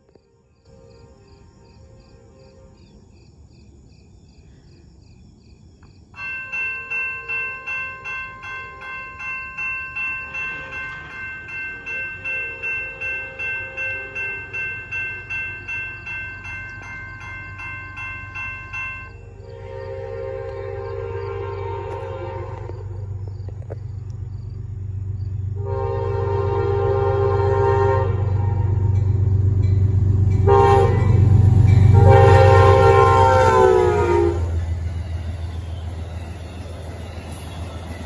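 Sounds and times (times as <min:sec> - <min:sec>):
faint distant crossing bell: 0:06.2 - 0:21.0
railroad crossing bell ringing: 0:06.2 - 0:23.3, 0:24.4 - 0:38.0.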